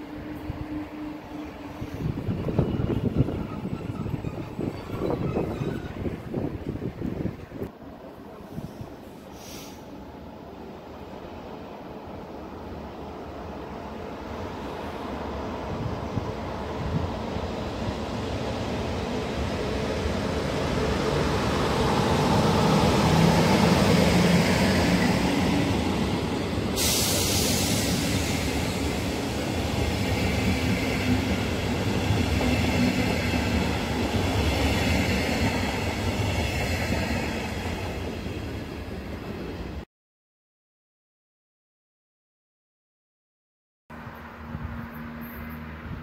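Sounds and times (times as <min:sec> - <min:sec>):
train wheels rumbling on rails: 0:00.0 - 0:07.7, 0:15.6 - 0:39.8
sharp hiss: 0:08.5 - 0:10.0, 0:26.6 - 0:29.2.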